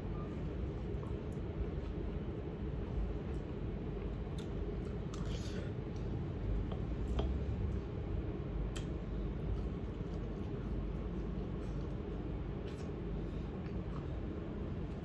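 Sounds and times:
steady low hum: 0:00.0 - 0:15.0
chewing: 0:04.2 - 0:07.4, 0:08.7 - 0:15.0.

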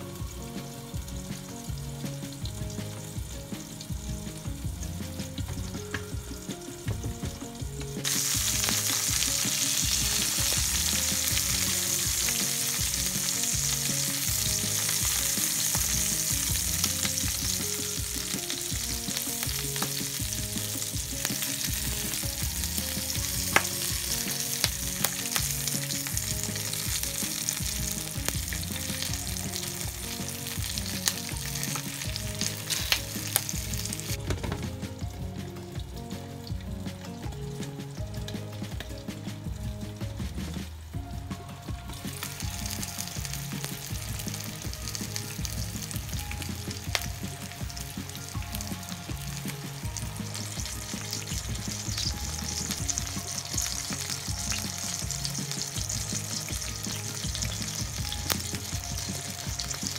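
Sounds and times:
peppers sizzling in oil: 0:00.0 - 0:59.9.

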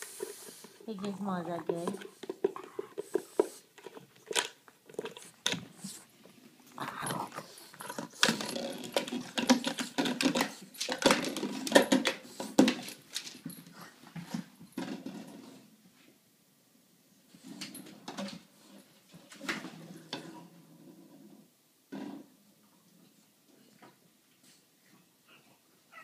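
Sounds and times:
dog snuffling: 0:00.0 - 0:10.8.

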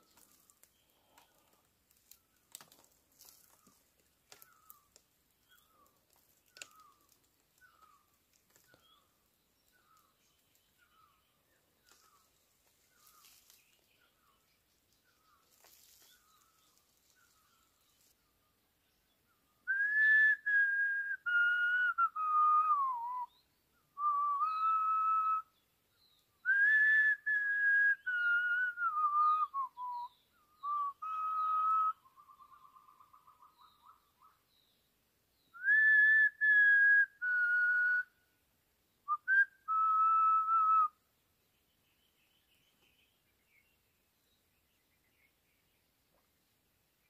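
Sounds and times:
person whistling slow melody: 0:19.7 - 0:23.4, 0:24.0 - 0:25.5, 0:26.5 - 0:32.1, 0:35.6 - 0:38.1, 0:39.1 - 0:41.0.

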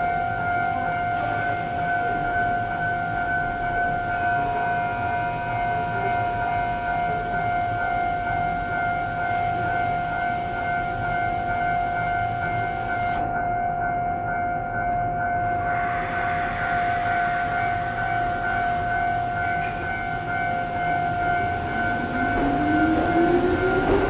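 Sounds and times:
steady electronic tone: 0:15.2 - 0:24.0.

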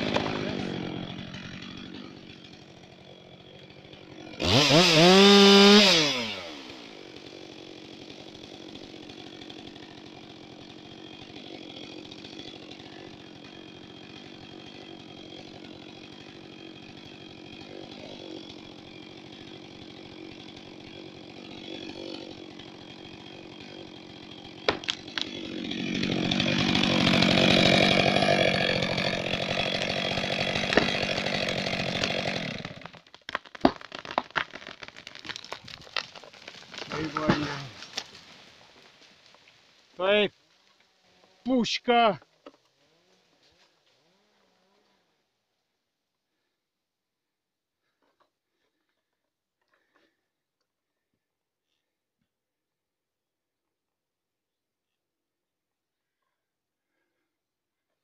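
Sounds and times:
chainsaw revving and idling: 0:00.0 - 0:33.1, 0:34.0 - 0:38.6, 0:40.0 - 0:45.4.

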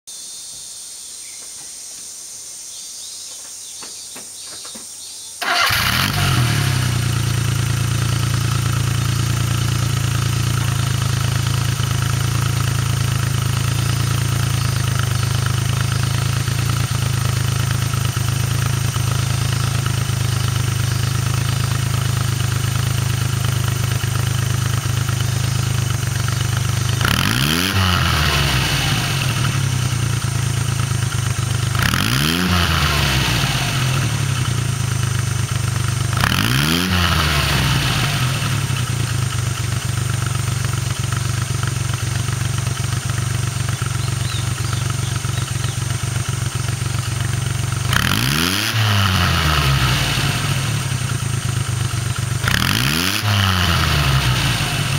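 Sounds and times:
truck engine starting and idling: 0:04.2 - 0:54.9
engine revving: 0:05.4 - 0:54.9.

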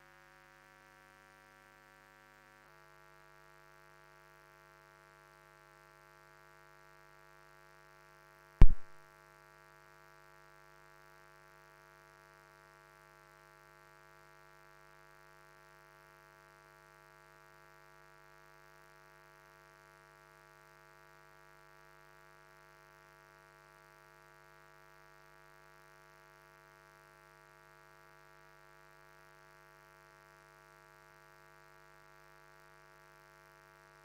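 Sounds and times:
loud short thump: 0:08.6 - 0:09.0.

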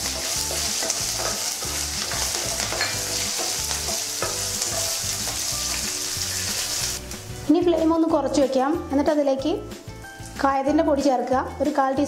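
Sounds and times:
spatula and seeds clicking: 0:00.0 - 0:06.9
spatula scraping pan: 0:00.0 - 0:07.0
spices sizzling in hot oil: 0:00.0 - 0:10.8.

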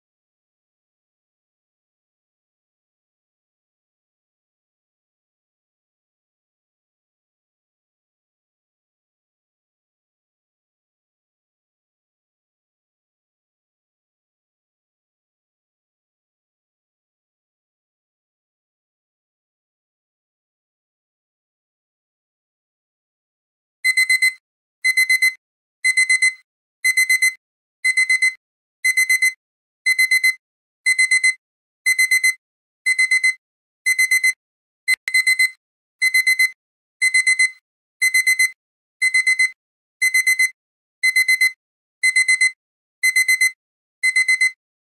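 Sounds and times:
timer alarm beeping: 0:23.8 - 0:44.6.

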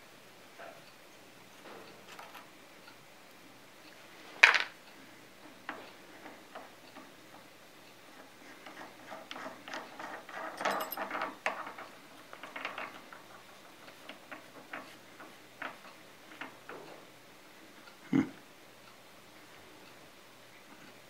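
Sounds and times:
small metal clicks and clinks: 0:09.7 - 0:13.0.

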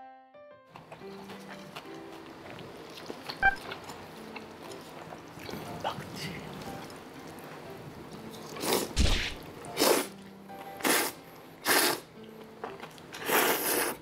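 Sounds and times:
person slurping noodles: 0:08.6 - 0:10.1, 0:10.8 - 0:12.1, 0:13.1 - 0:14.0.

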